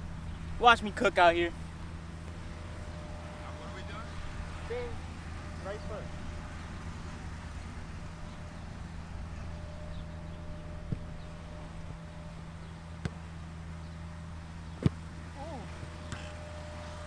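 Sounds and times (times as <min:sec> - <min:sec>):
outdoor background rumble: 0:00.0 - 0:17.0
soccer ball being kicked: 0:13.0 - 0:13.3, 0:14.7 - 0:15.1, 0:15.8 - 0:16.3.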